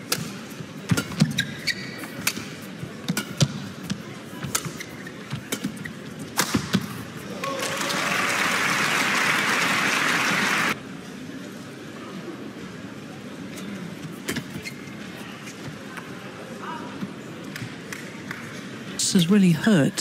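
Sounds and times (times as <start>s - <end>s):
shoes squeaking on court: 0.8s - 7.0s, 14.0s - 16.0s
crowd applause: 7.4s - 10.8s.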